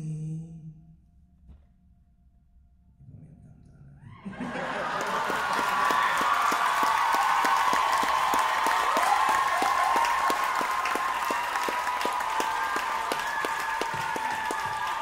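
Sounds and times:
audience clapping in time: 4.6s - 15.0s.

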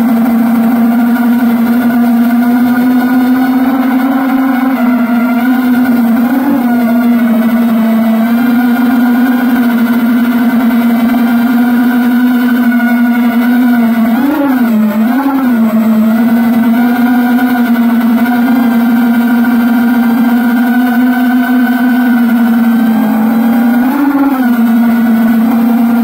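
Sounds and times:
motor humming: 0.0s - 26.0s.

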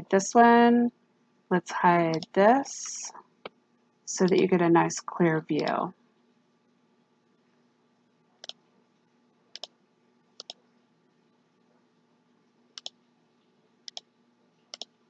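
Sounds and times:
computer mouse clicking: 2.1s - 2.4s, 8.4s - 8.6s, 9.5s - 9.8s, 10.4s - 10.6s, 12.8s - 13.0s, 13.9s - 14.1s, 14.7s - 14.9s.

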